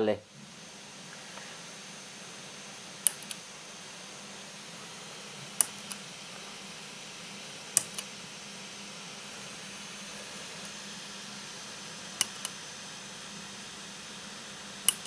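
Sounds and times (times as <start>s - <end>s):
lamp push-button switch clicking: 3.0s - 3.4s, 5.6s - 6.0s, 7.7s - 8.1s, 12.2s - 12.6s.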